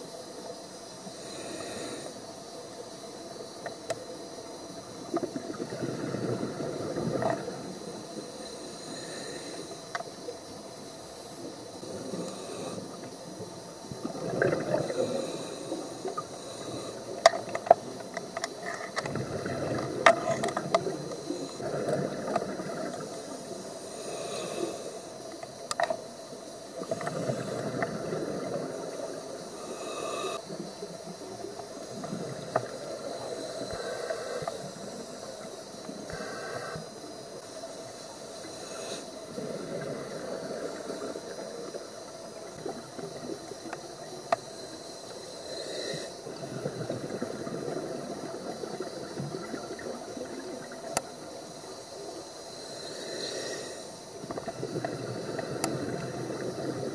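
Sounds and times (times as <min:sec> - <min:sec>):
steady watery hiss: 0:00.0 - 0:56.9
exhaled bubbles rushing: 0:05.2 - 0:07.7, 0:13.9 - 0:15.2, 0:19.0 - 0:23.2, 0:46.3 - 0:51.2, 0:54.4 - 0:56.9.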